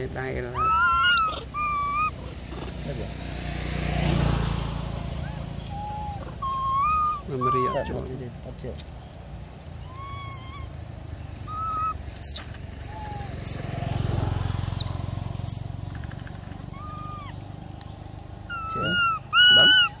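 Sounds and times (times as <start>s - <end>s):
macaques cooing and squeaking: 0.4s - 2.8s, 5.2s - 8.2s, 9.8s - 13.6s, 14.7s - 15.6s, 16.6s - 17.5s, 18.4s - 20.0s.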